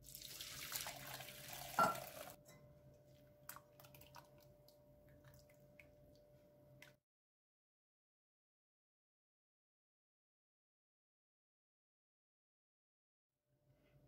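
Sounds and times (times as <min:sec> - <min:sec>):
liquid splashing through strainer: 0:00.0 - 0:02.4, 0:03.5 - 0:05.9
pot knock: 0:01.8 - 0:02.6
faint drips: 0:03.4 - 0:07.0.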